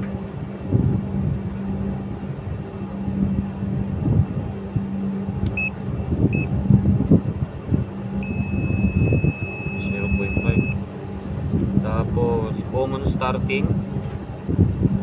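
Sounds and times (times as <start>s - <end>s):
low rumble: 0.0s - 15.0s
steady low hum: 0.0s - 15.0s
clamp meter beeping: 5.5s - 5.7s, 8.2s - 10.8s.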